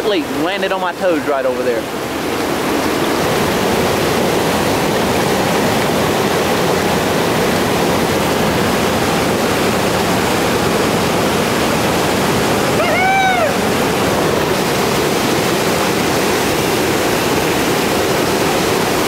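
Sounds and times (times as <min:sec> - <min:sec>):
whitewater rapids rushing: 0:00.0 - 0:19.0.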